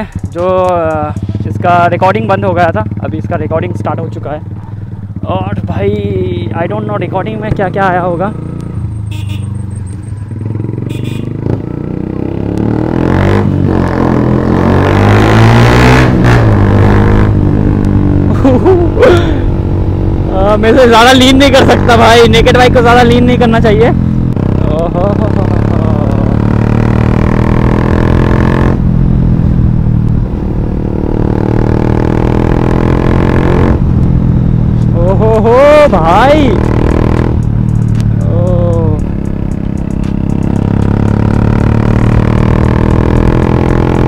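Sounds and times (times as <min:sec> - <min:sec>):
loud motorcycle engine accelerating: 0:00.0 - 0:44.0.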